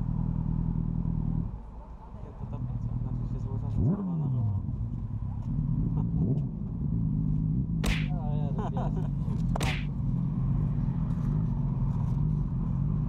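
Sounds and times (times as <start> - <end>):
sharp whooshes: 7.8 - 8.2, 9.6 - 9.9.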